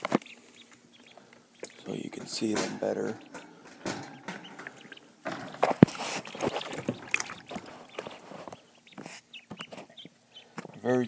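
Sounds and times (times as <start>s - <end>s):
wire cage lid rattling: 1.7s - 8.3s.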